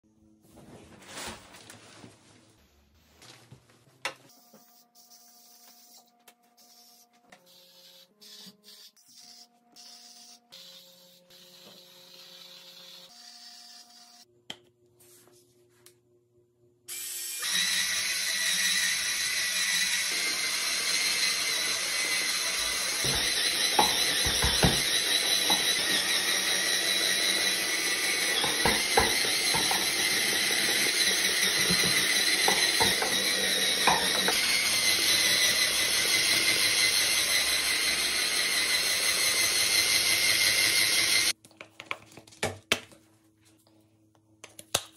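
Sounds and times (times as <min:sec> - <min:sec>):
spin scrub brush whirring: 0:17.4 - 0:41.4.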